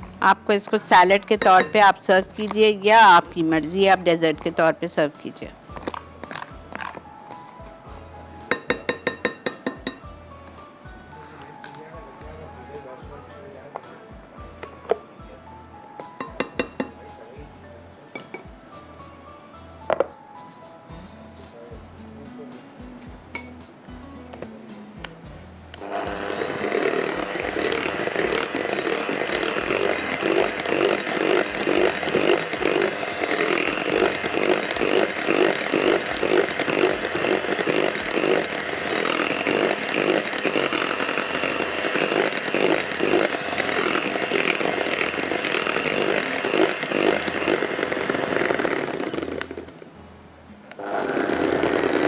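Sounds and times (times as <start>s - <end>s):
electric hand mixer running: 25.8s - 49.8s, 50.8s - 52.0s.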